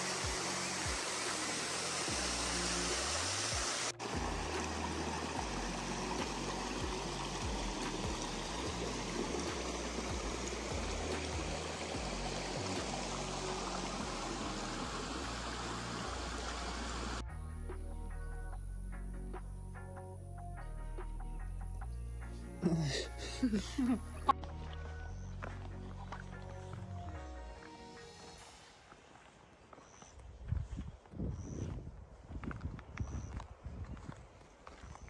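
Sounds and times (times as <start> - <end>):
creek water rushing over rock: 0.0 - 17.2.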